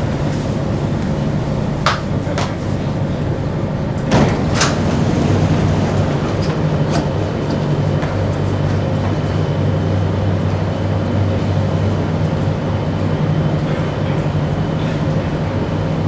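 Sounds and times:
train low hum: 0.0s - 16.0s
train doors knock and thump: 4.0s - 8.2s.

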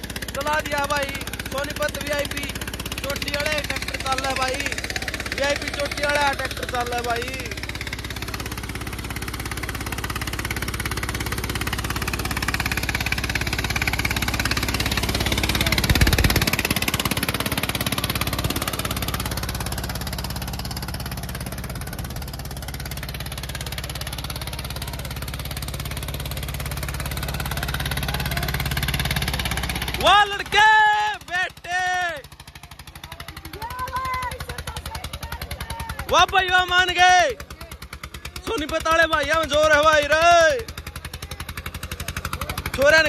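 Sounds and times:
diesel tractor engine under load: 0.0s - 43.0s.

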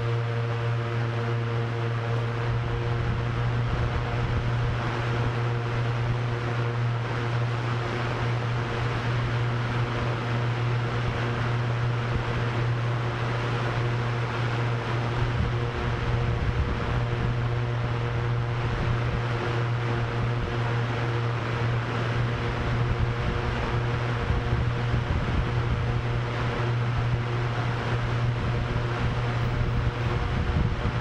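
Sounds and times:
drone propellers humming: 0.0s - 31.0s
wind rushing: 28.1s - 31.0s.

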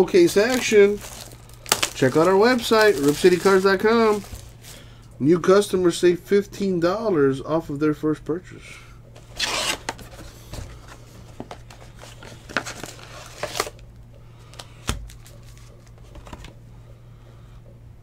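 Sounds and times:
foil packs crinkling: 0.0s - 4.9s, 9.2s - 13.8s, 14.4s - 16.5s
steady low hum: 0.0s - 18.0s.

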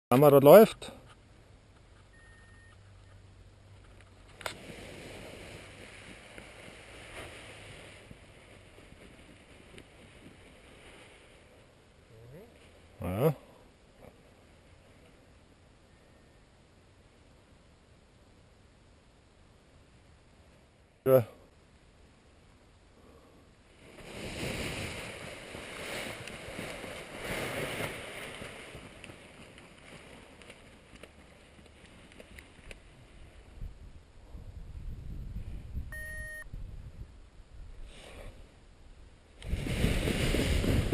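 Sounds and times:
wind rushing over microphone: 33.3s - 37.9s, 39.4s - 40.9s.

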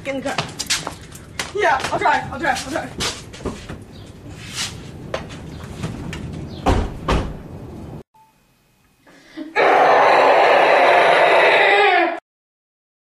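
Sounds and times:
car door slamming shut: 6.6s - 7.4s.

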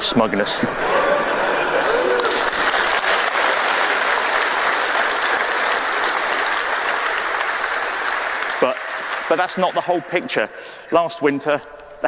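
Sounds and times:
audience applauding: 0.9s - 10.5s.

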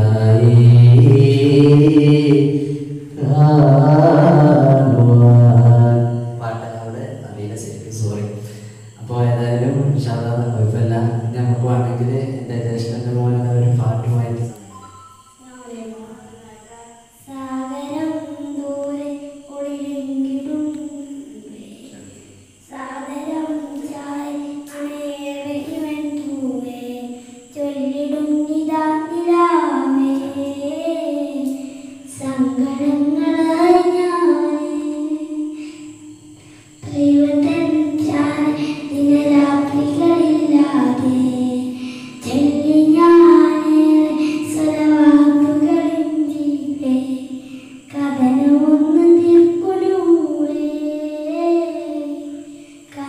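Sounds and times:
boy singing into microphone: 0.0s - 14.5s, 22.8s - 53.0s.

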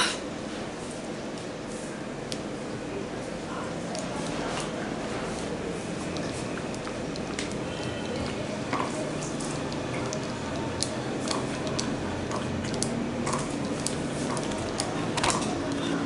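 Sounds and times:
piping cone squishing: 3.7s - 16.0s.

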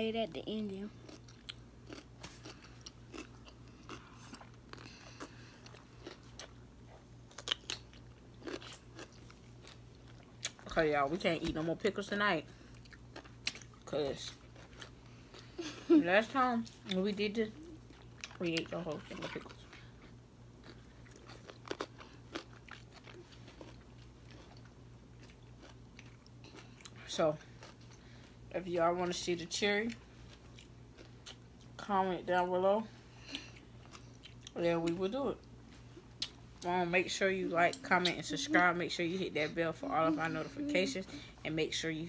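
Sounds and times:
faint low hum: 0.0s - 42.0s
crunching and chewing pickles: 0.8s - 11.7s, 12.5s - 15.5s, 16.6s - 31.9s, 33.2s - 36.7s.

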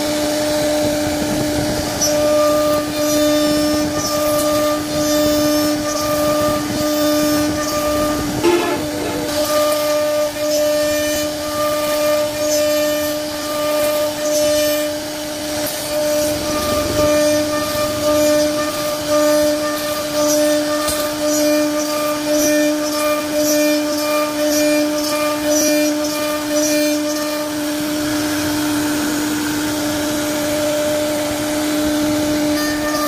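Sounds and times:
router spindle whine: 0.0s - 33.0s
bit cutting wood: 2.0s - 15.0s.

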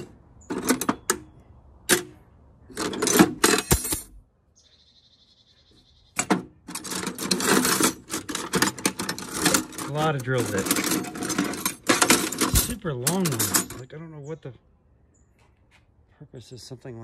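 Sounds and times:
drill bits clinking and rattling: 6.7s - 13.9s.

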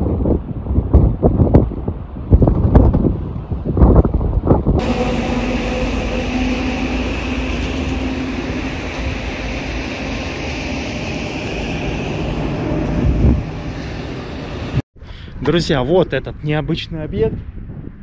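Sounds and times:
steady rumbling drone: 4.8s - 14.8s.

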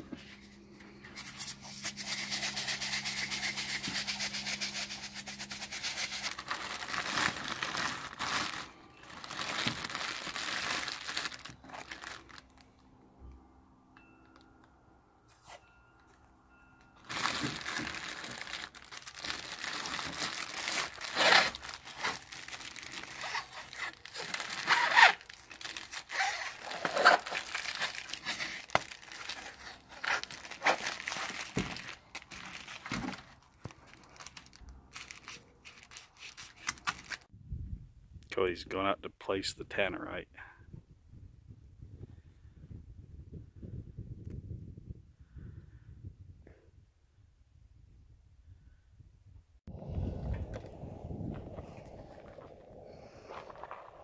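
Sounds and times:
electrical tape tearing: 1.2s - 12.5s, 17.1s - 37.3s
plastic bag crinkling: 1.2s - 12.7s, 17.0s - 37.3s.

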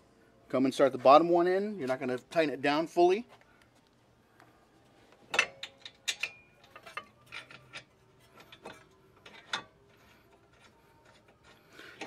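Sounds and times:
metal clicks and clinks: 5.3s - 9.8s.

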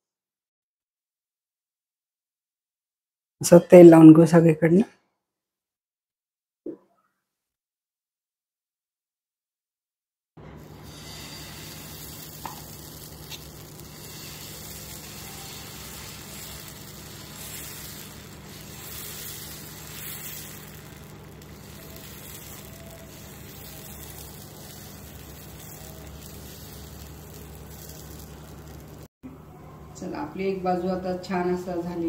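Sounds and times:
batter sizzling on a hot pan: 10.4s - 29.1s.

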